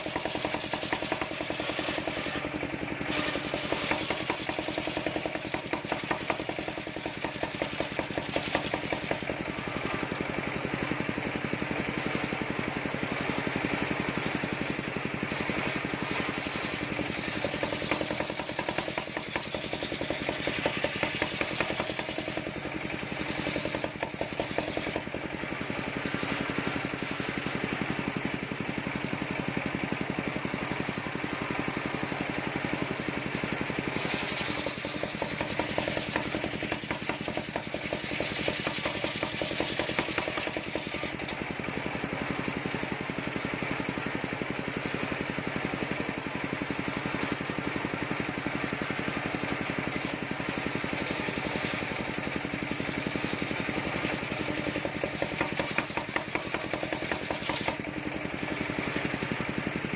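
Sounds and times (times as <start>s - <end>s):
saw blade cutting wood: 0.0s - 10.0s, 13.2s - 25.3s, 33.2s - 41.5s, 49.8s - 58.6s
saw engine pulsing: 0.0s - 59.9s.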